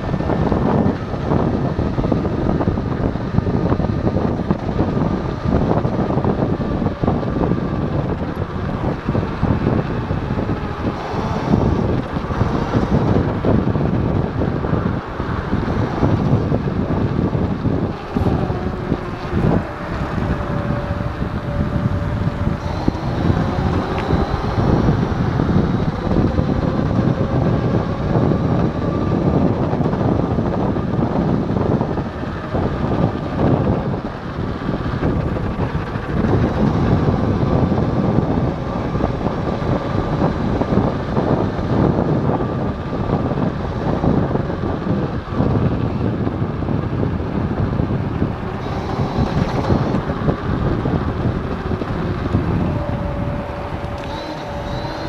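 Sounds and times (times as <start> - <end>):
faint motor whine: 0.0 - 55.0
scooter road rumble: 0.0 - 55.0
wind buffeting microphone: 0.0 - 55.0.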